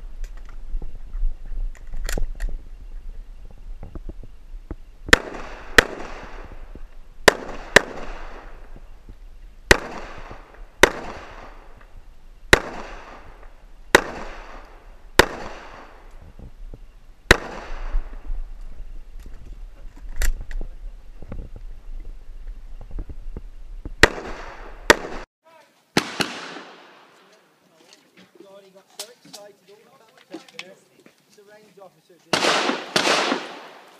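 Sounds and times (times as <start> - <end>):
pistol shots with echo: 5.1 - 6.5, 7.2 - 8.6, 9.7 - 11.7, 12.5 - 16.0, 17.3 - 18.1, 24.0 - 25.2, 26.0 - 27.2, 32.3 - 33.9.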